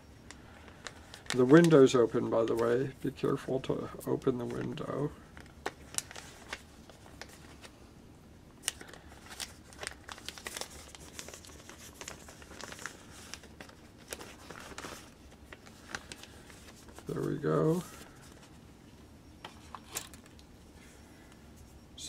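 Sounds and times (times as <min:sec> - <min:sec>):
crinkling rustles: 0:00.2 - 0:07.8, 0:08.6 - 0:21.8.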